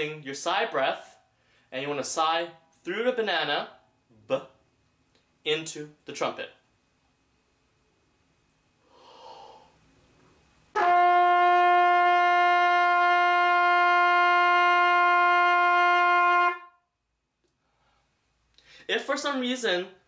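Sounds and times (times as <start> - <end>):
breath drawn in: 8.8 - 9.8
trumpet long steady note: 10.7 - 16.8.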